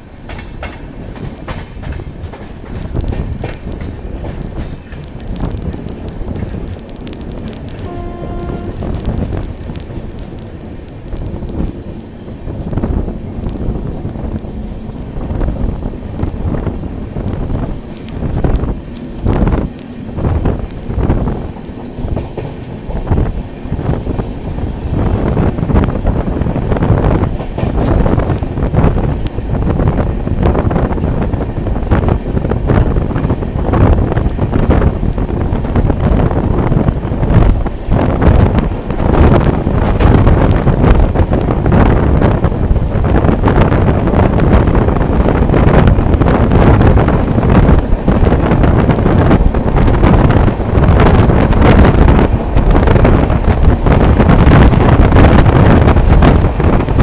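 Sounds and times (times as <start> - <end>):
rail clicks: 0.0 - 57.0
train coaches rumbling on track: 0.0 - 57.0
wind buffeting microphone: 0.0 - 57.0
faint clicks: 2.4 - 23.7.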